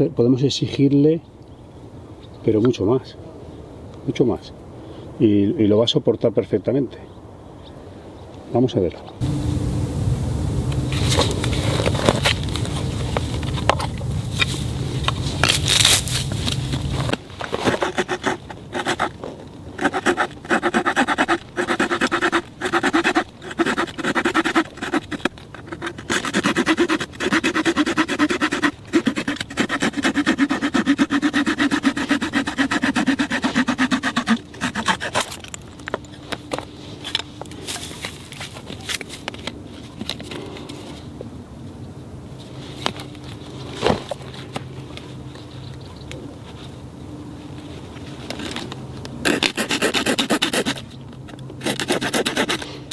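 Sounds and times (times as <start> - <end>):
knife scraping wood: 17.5 - 35.5, 49.2 - 51.0, 51.6 - 52.8.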